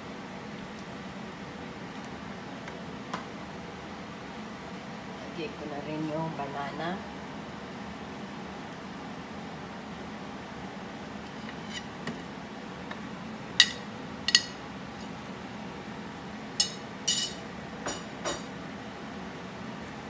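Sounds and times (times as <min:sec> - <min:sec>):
metal spoon clinking on plate: 0:16.6 - 0:18.5.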